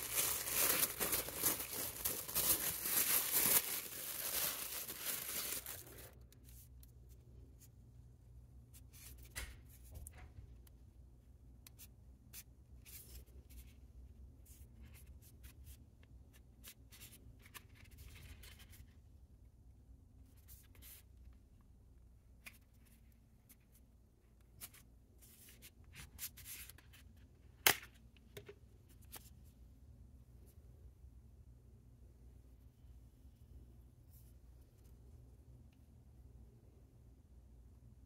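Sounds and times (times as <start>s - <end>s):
paper rustling and scraping: 0.0s - 6.2s.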